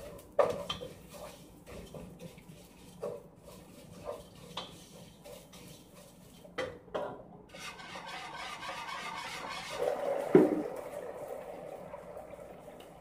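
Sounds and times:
scraping and rubbing: 7.5 - 9.9.

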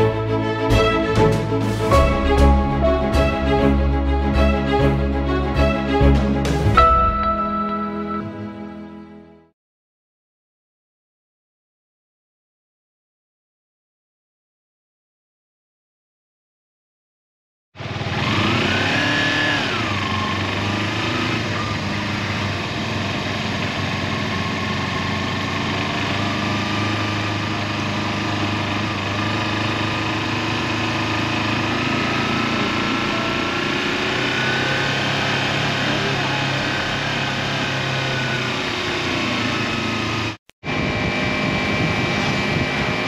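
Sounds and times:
motorcycle engine running: 17.8 - 43.0.

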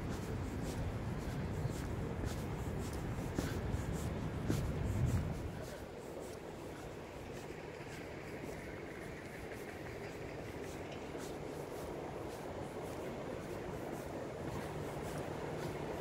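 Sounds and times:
footsteps on pavement: 0.0 - 16.0.

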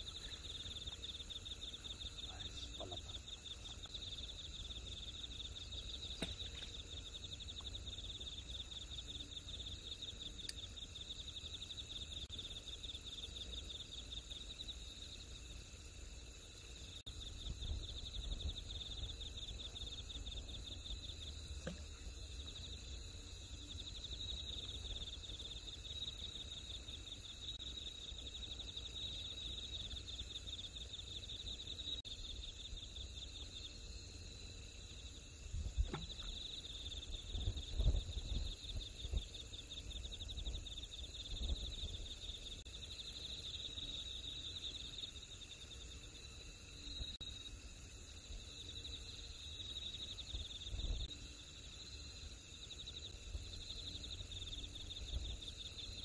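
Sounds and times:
night insects trilling: 0.0 - 56.0.

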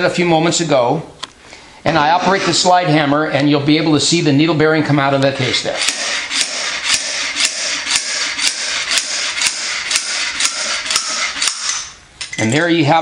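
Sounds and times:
metal scraping: 1.9 - 4.0.

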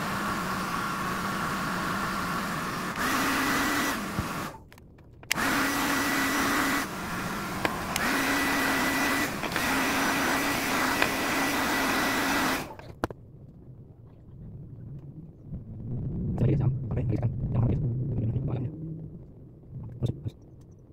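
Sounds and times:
hair dryer running: 0.0 - 4.6, 5.3 - 12.9.

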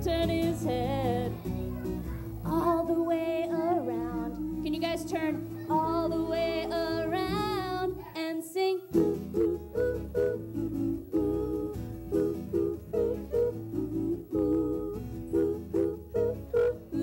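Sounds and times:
bass guitar: 0.0 - 2.9, 9.0 - 17.0
acoustic guitar: 0.0 - 17.0
women and children singing: 0.0 - 17.0.

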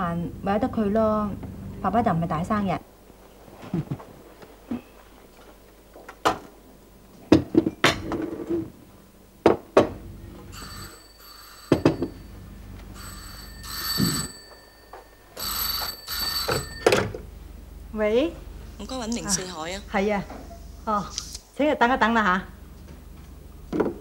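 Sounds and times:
telephone bell ringing: 10.5 - 17.3.

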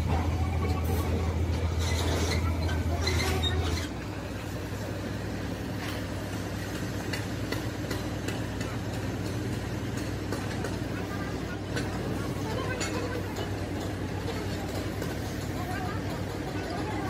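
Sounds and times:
faint clicks and knocks: 5.8 - 16.8.

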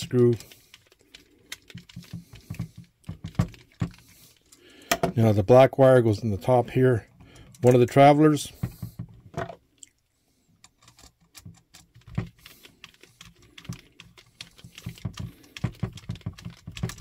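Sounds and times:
screwdriver clicks and scrapes: 10.6 - 12.0.

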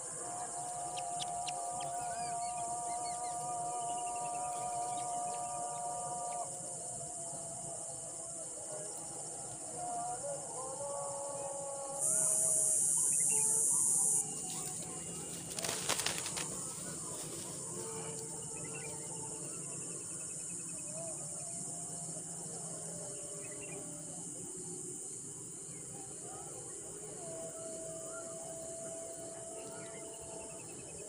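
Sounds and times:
high insect buzz: 0.0 - 31.0
twig rustle: 14.3 - 17.8
bird wingbeats: 14.4 - 18.0.

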